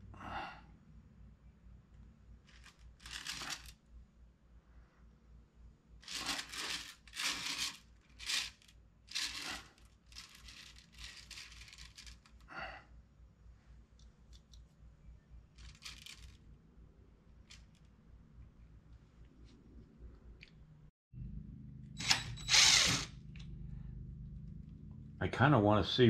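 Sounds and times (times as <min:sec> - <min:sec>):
short squeak: 0:22.0 - 0:23.1.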